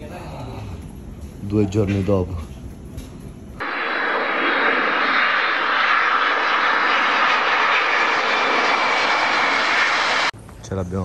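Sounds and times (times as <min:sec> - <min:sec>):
jet engines running: 0:03.6 - 0:10.4.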